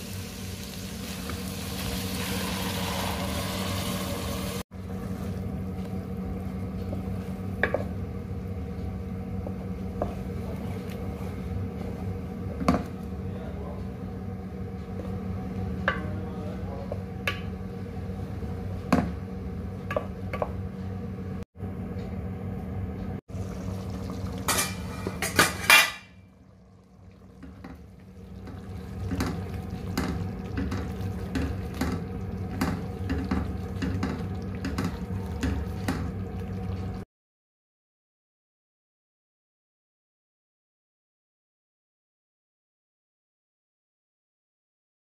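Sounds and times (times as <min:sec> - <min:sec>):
metal utensil scraping in a pan: 0:24.5 - 0:26.2.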